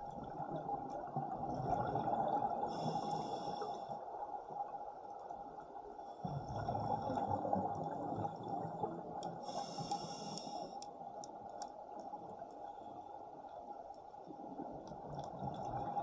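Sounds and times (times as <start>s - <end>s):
exhaled bubbles rumbling: 0.0s - 2.9s, 6.3s - 9.2s, 14.5s - 16.0s
regulator inhalation hiss: 2.8s - 3.8s, 9.5s - 10.8s.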